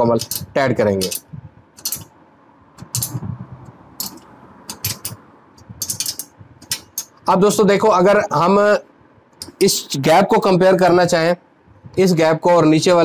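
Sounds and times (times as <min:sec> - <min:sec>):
ratchet wrench clicking: 0:00.2 - 0:01.2, 0:01.8 - 0:02.1, 0:02.8 - 0:03.2, 0:04.0 - 0:05.2, 0:05.8 - 0:07.2.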